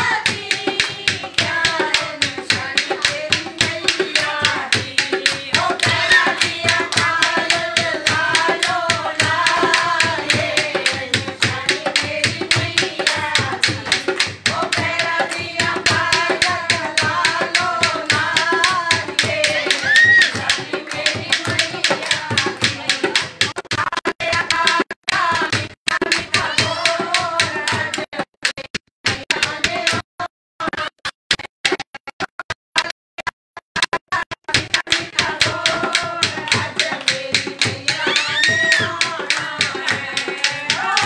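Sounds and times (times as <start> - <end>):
women singing in unison: 0.0 - 23.4, 24.2 - 28.3, 29.1 - 30.0, 34.5 - 41.0
hand clapping: 0.0 - 23.6, 34.6 - 41.0.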